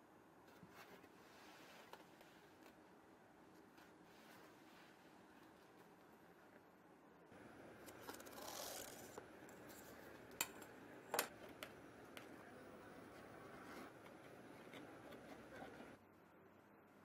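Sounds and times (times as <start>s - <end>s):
soft rubbing and scraping: 0.5s - 2.8s, 3.5s - 6.0s, 13.0s - 16.0s.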